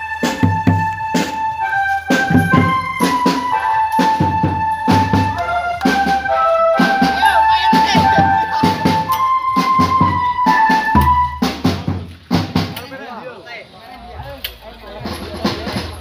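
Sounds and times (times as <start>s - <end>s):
electronic keyboard flute melody: 0.0s - 11.6s
drums beating dense rhythm: 0.0s - 13.1s, 14.8s - 16.0s.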